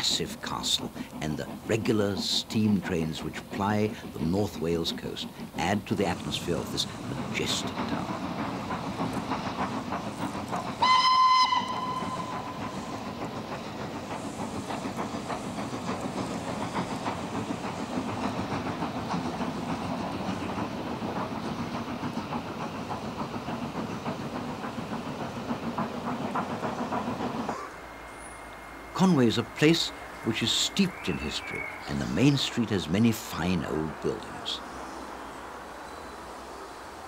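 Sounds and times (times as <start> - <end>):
train running past: 0.0 - 37.0
steam locomotive whistle: 10.8 - 12.4.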